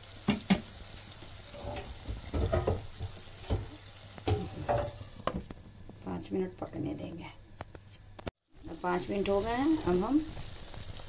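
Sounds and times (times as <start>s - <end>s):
food sizzling in a wok: 0.0s - 5.6s, 8.6s - 11.0s
cookware knocking and clattering: 1.8s - 3.6s.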